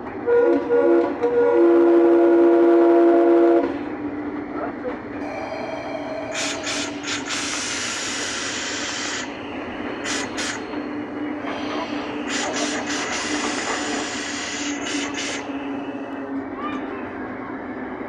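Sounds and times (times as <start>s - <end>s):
diesel locomotive engine drone: 0.0s - 18.0s
air hissing bursts: 6.2s - 16.2s.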